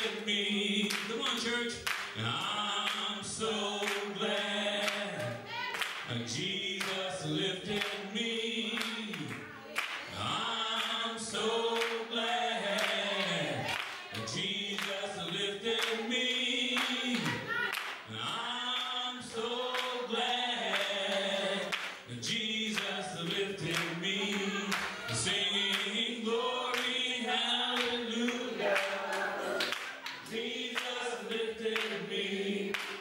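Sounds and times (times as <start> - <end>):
choir and congregation singing: 0.0 - 33.0
sharp handclaps: 0.8 - 3.1, 4.8 - 6.1, 11.8 - 12.0, 12.8 - 16.0, 16.8 - 18.9, 20.7 - 22.1, 22.7 - 25.9, 29.6 - 32.0, 32.7 - 33.0.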